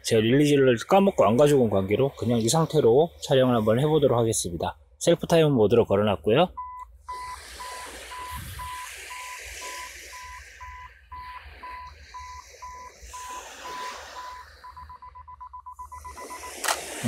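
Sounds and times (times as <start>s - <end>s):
camera self-timer beeping: 7.1s - 16.8s.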